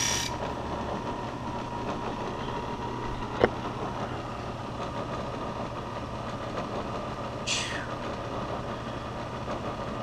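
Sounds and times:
bench grinder motor running: 0.0s - 0.4s.

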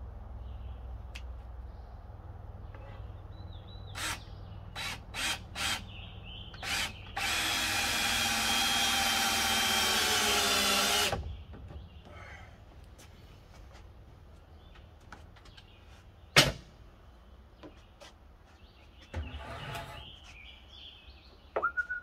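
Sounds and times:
cordless drill driving screws: 6.6s - 11.2s.

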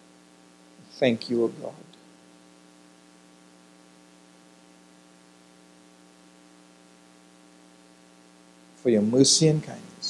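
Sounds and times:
electrical hum with hiss: 0.0s - 10.0s.

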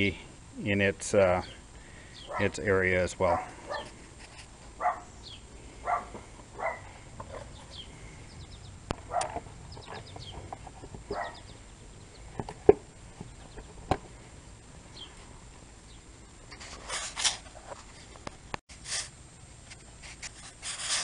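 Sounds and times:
animal calls: 4.8s - 11.6s.

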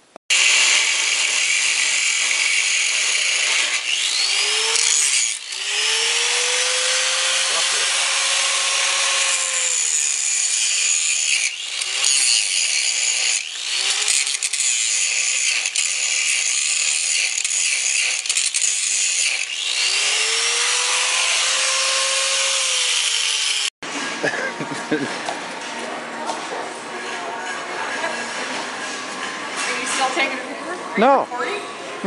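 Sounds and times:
angle grinder grinding metal: 0.3s - 25.4s.

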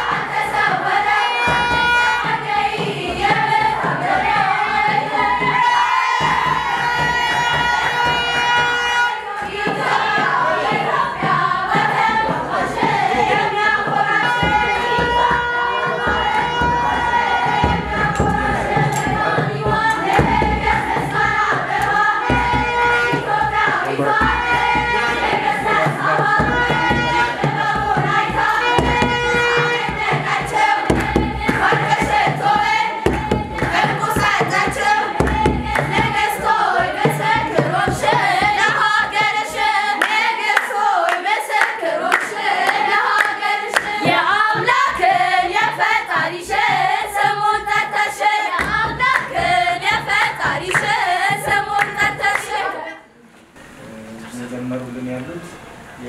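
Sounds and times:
choir of women singing a hymn: 0.0s - 53.2s
hand clapping: 13.9s - 44.8s, 48.5s - 52.6s.

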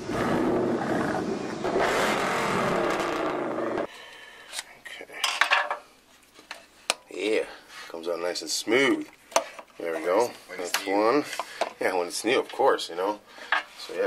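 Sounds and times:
rushing whoosh effect: 0.0s - 3.9s.

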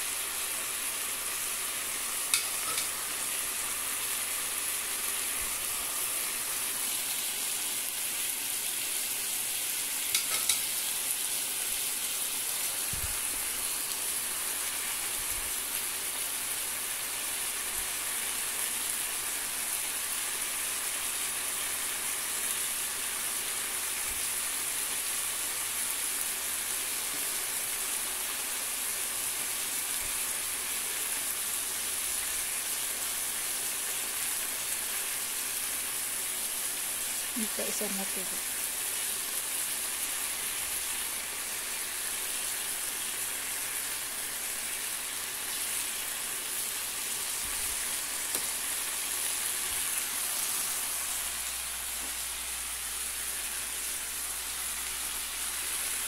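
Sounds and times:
chicken sizzling in a pan: 0.0s - 56.0s
metal tongs clicking on pan: 2.3s - 3.0s, 10.1s - 10.7s.

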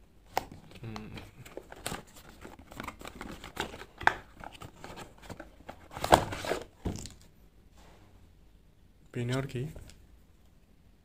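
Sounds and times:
cardboard box rustling and scraping: 4.4s - 6.7s.

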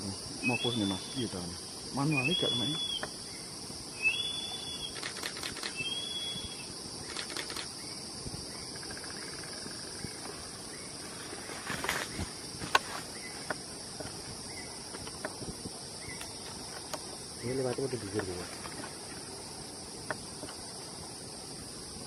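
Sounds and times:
high insect drone: 0.0s - 22.0s
short high whistled calls: 2.2s - 3.1s, 4.0s - 7.3s
light clicks and rustles: 16.2s - 19.1s.

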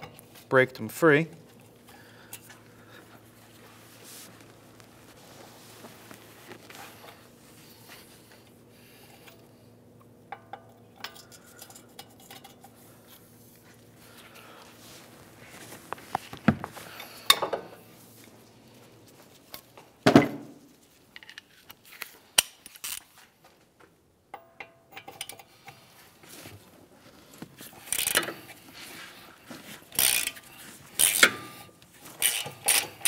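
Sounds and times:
ratchet clicking: 22.4s - 23.0s, 27.8s - 28.4s, 29.9s - 31.5s, 32.2s - 33.0s.

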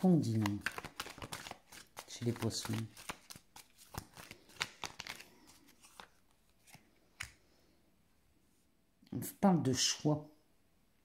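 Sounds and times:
cards shuffling: 0.0s - 7.4s.

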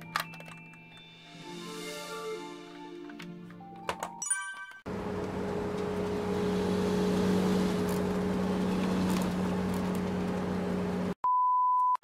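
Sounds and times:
vehicle engine drone: 4.9s - 11.2s.

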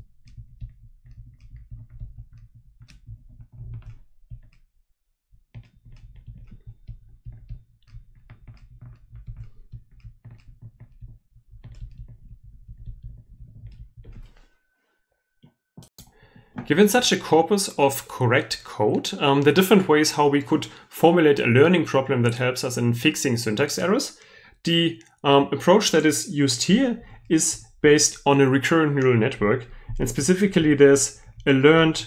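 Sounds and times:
stylus tapping on tablet screen: 0.0s - 4.7s, 5.5s - 14.5s.

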